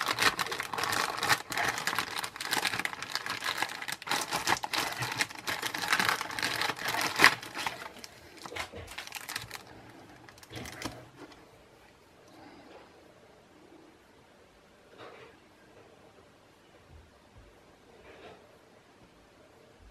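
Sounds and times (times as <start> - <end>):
plastic bag crinkling: 0.0 - 11.4.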